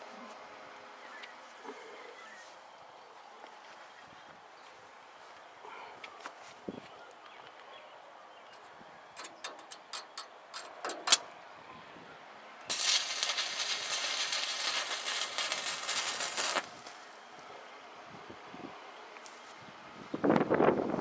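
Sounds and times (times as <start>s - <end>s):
welding arc crackling: 12.7s - 17.1s.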